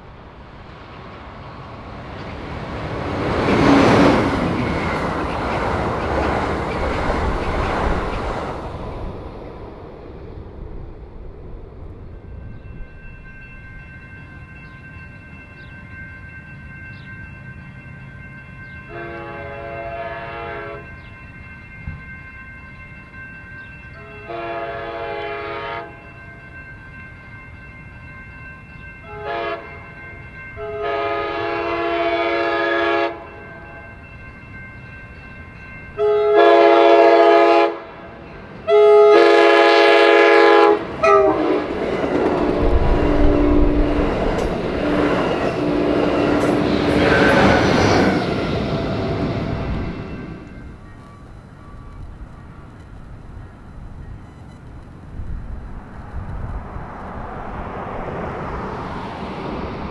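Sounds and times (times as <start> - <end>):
train passing with wheel rumble: 0.0 - 59.9
locomotive air horn blasts: 18.9 - 20.9, 24.1 - 26.0, 29.1 - 29.7, 30.6 - 33.4, 36.0 - 38.0, 38.7 - 41.7.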